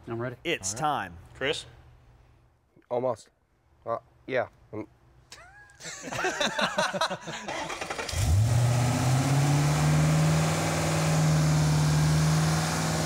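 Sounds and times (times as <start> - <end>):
car engine cranking and idling: 7.5 - 13.0.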